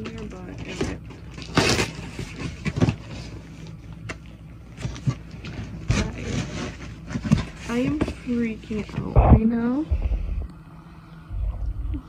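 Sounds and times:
cardboard box rustling: 0.0s - 3.7s, 4.7s - 9.0s.

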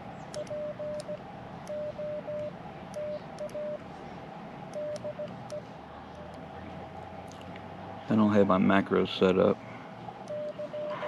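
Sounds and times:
morse code tone: 0.4s - 3.8s, 4.7s - 5.6s, 10.3s - 11.0s.

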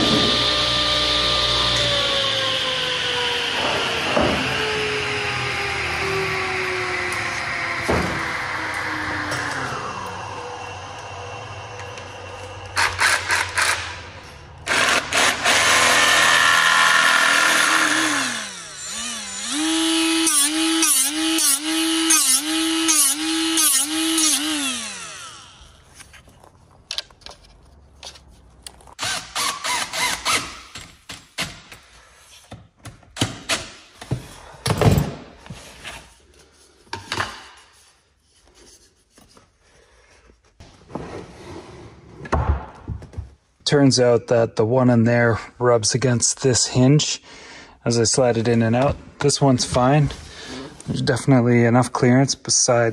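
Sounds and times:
power tool grinding: 14.7s - 26.3s
small motor whining: 16.9s - 25.9s.

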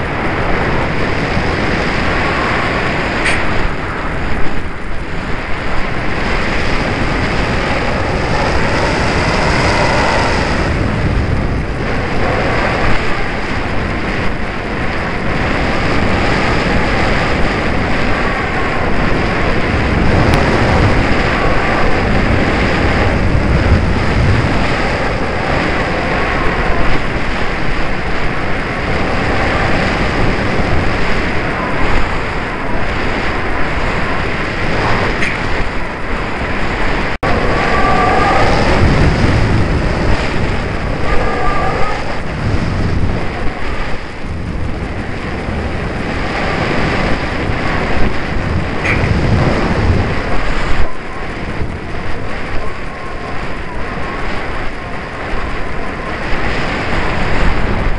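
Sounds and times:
wind buffeting microphone: 0.0s - 57.9s.

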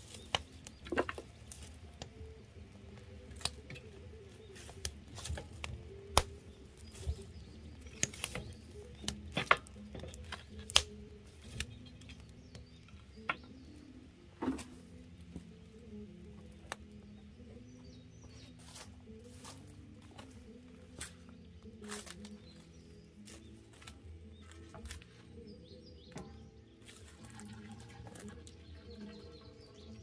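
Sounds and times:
wood fire crackling and popping: 0.0s - 13.7s
stick knocking burning logs: 0.0s - 29.9s.

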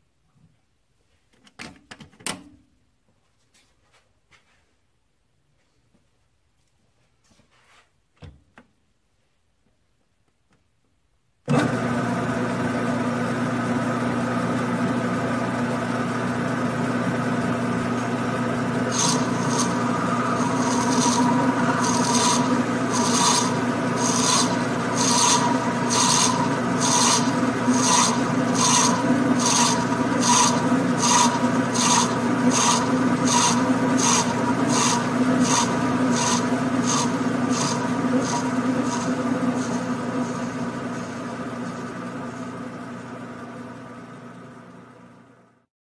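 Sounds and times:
metal lathe humming: 11.6s - 45.0s.

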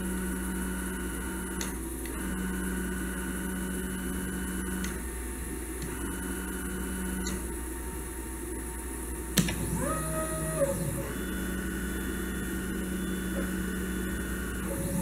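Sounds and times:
motor clicks: 1.5s - 2.2s, 4.6s - 5.0s, 5.8s - 6.2s, 7.1s - 7.5s
stepper motors whining: 9.3s - 15.0s.

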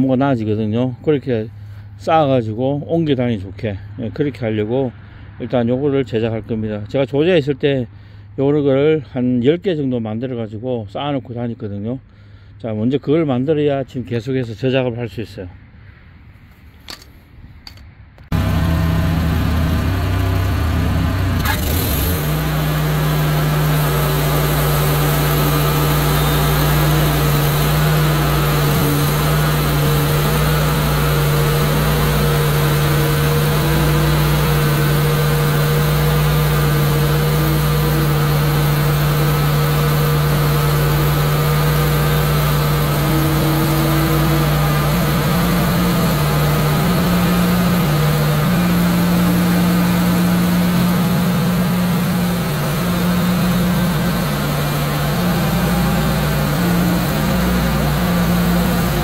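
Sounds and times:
band sawmill running: 18.3s - 59.0s.

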